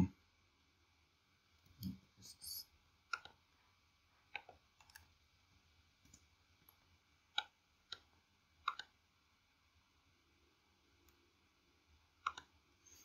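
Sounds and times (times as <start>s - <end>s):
computer mouse clicks: 3.1s - 3.4s, 4.3s - 5.1s, 6.0s - 9.0s, 12.2s - 13.0s.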